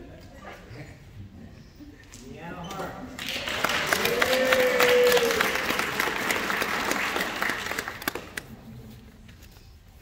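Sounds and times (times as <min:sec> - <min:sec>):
audience applauding: 0:03.2 - 0:08.5.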